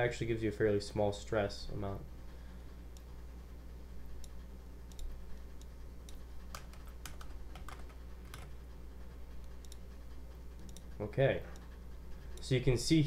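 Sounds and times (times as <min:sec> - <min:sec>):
computer keyboard typing: 0:06.5 - 0:08.6.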